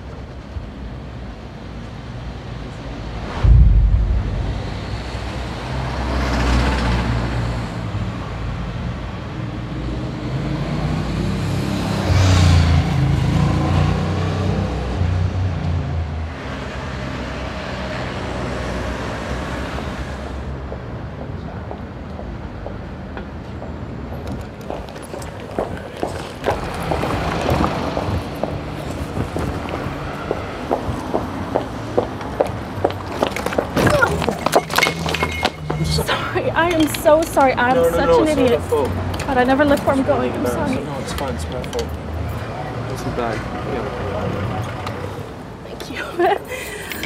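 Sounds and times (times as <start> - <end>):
vehicles passing: 0.0 - 47.0
low engine rumble: 2.8 - 6.2
loud low boom: 3.2 - 6.4.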